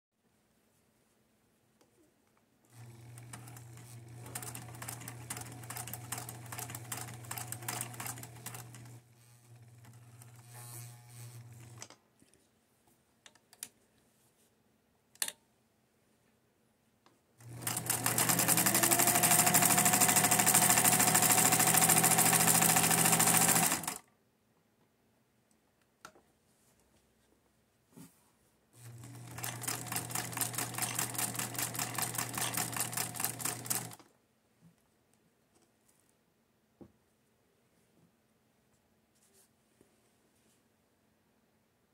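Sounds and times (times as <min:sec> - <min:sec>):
sewing machine stitching: 0:02.7 - 0:11.9, 0:17.4 - 0:24.0, 0:28.8 - 0:34.1.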